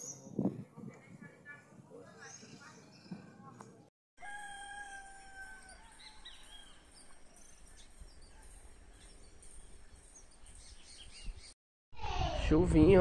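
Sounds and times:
bird chirps: 5.6 - 11.6.

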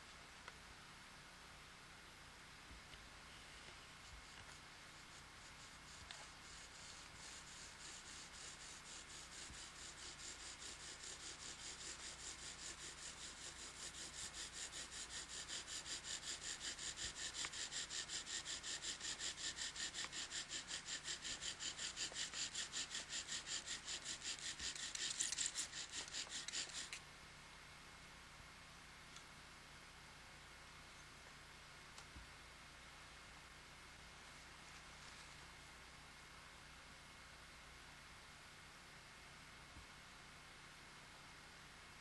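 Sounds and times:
bow drill spindle rasping: 4.1 - 27.0.

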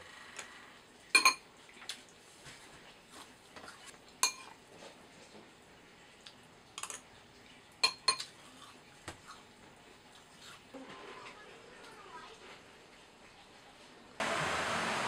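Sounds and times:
spoon clinking against bowl: 1.2 - 1.4, 4.2 - 4.5, 7.8 - 8.3.

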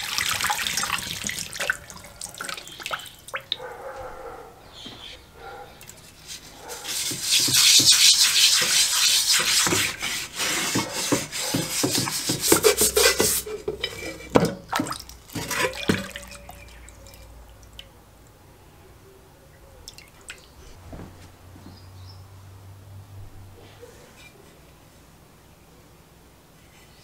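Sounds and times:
water dripping into basin: 0.0 - 3.8, 14.6 - 18.4, 19.8 - 20.6
water splashing and sloshing: 0.0 - 4.2, 5.4 - 18.0
wire brush scrubbing iron: 6.0 - 14.3.

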